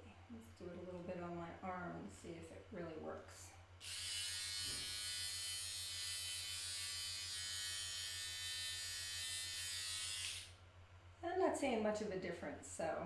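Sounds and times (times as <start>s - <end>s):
hair removal device buzzing: 3.8s - 10.6s.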